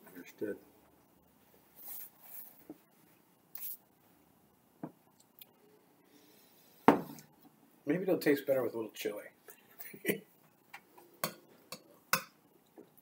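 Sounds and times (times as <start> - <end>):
paper napkin rustling: 1.8 - 2.7.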